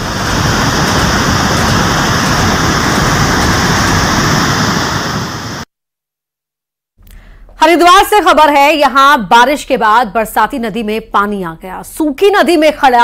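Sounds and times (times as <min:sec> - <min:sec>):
river rushing: 0:00.0 - 0:05.6.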